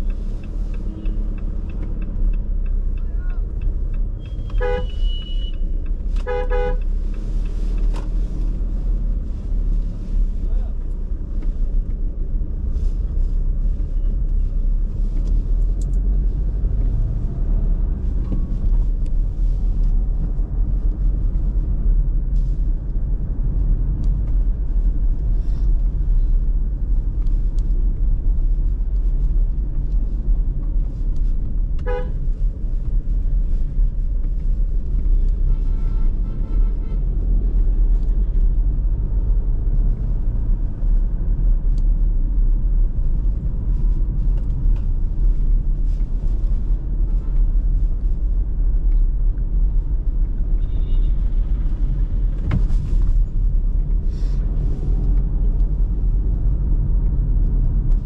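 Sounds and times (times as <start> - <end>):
car engine and tyres rumbling: 0.0 - 58.0
pulsing car horn: 4.3 - 5.6, 6.2 - 6.9, 31.8 - 32.2, 35.5 - 37.0
short car horn toot: 4.4 - 5.6, 31.9 - 32.1.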